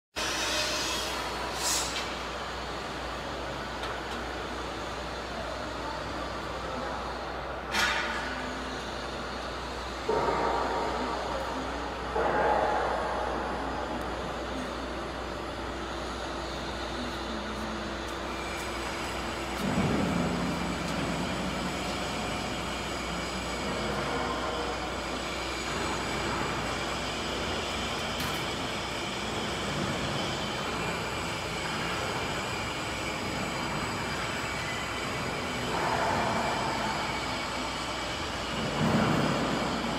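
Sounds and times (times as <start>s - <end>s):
machine hum with blowers: 0.2s - 39.9s
air hiss: 0.3s - 2.2s.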